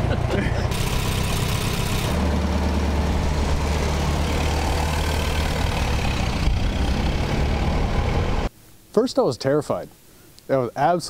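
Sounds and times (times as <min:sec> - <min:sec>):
car engine droning: 0:00.0 - 0:08.5.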